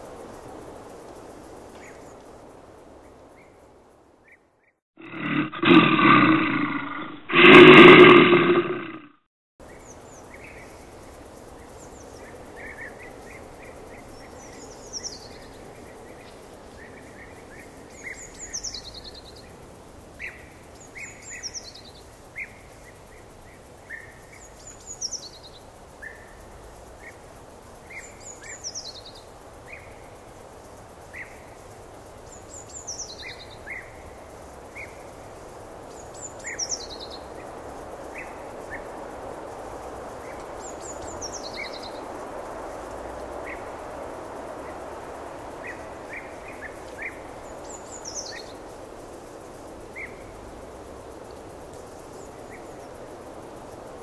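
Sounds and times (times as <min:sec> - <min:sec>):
outdoor background hiss: 0:00.0 - 0:54.0
songbirds singing: 0:09.6 - 0:39.0, 0:40.0 - 0:43.9, 0:44.5 - 0:54.0.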